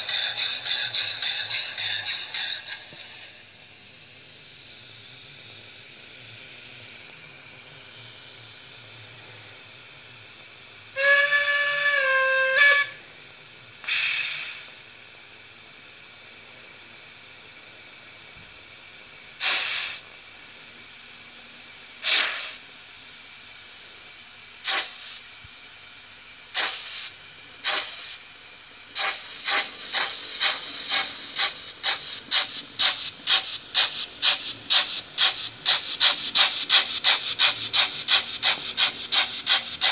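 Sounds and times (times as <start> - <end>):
steam locomotive exhaust chuffs: 0.0 - 22.7, 23.7 - 39.9
steady steam hiss: 0.0 - 39.9
steam whistle: 10.9 - 13.1
blow of steam: 13.9 - 14.7, 19.4 - 20.0, 22.0 - 22.6.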